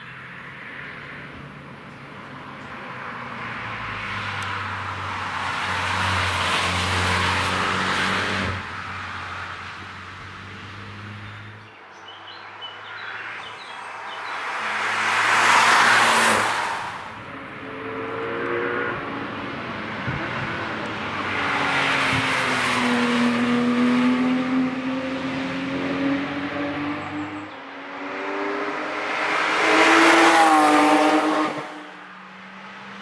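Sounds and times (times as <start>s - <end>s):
cars passing at speed: 0.0s - 33.0s
car engines rising and falling: 0.3s - 33.0s.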